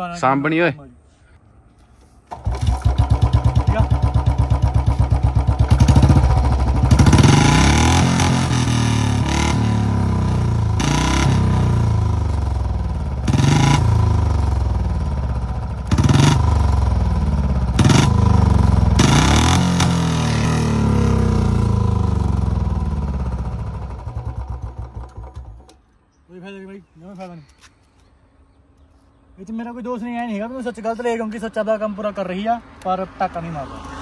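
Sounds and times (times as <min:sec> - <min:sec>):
motorcycle engine revving: 0:02.3 - 0:25.7.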